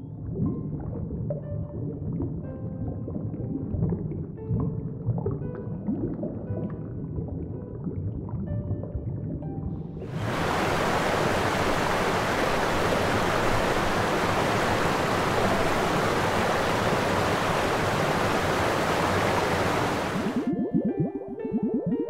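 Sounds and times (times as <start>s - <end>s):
water rushing: 10.1s - 20.5s.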